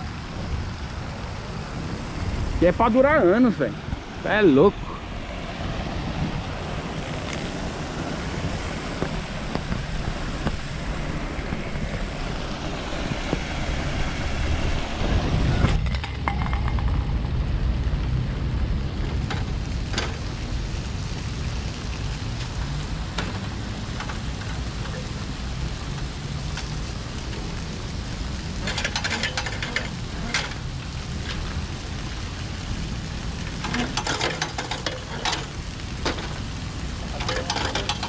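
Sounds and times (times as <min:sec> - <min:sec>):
wind buffeting microphone: 0:00.0 - 0:28.8
low traffic rumble: 0:00.0 - 0:38.0.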